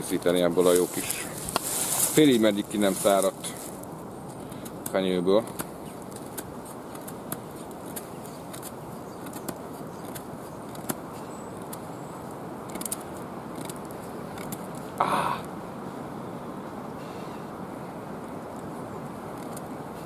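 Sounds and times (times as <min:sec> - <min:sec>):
wood clicks and crackles: 0:12.6 - 0:14.9.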